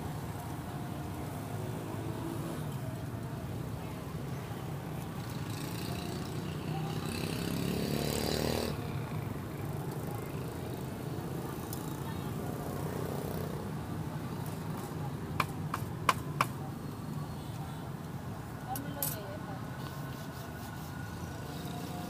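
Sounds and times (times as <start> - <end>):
street traffic rumble: 0.0 - 22.0
vehicle engine: 5.2 - 15.2
people talking: 9.5 - 12.9, 18.6 - 22.0.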